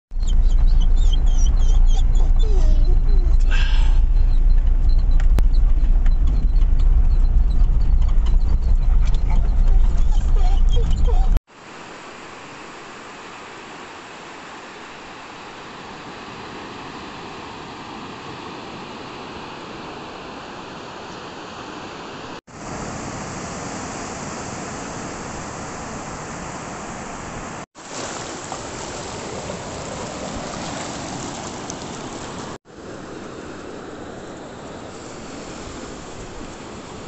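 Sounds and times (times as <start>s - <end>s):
surf washing up a beach: 11.5s - 37.0s.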